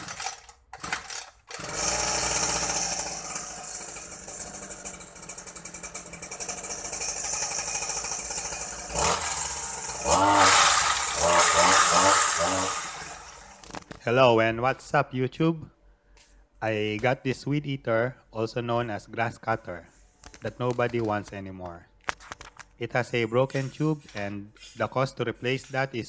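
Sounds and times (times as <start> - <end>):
two-stroke engine revving: 1.5 - 13.8.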